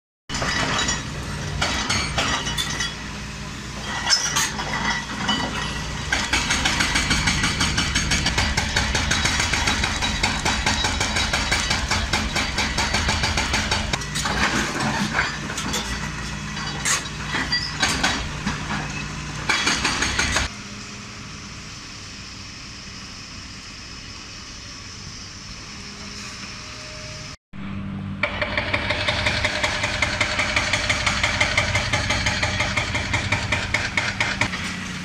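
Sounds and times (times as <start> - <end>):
excavator diesel engine: 0.3 - 35.0
breaking concrete and falling rubble: 3.9 - 18.9.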